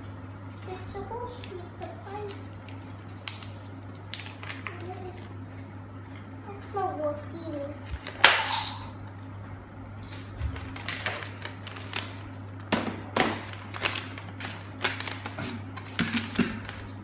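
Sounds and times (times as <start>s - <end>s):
steady low hum: 0.0s - 17.0s
paper crackling and crinkling: 0.5s - 5.4s, 10.0s - 17.0s.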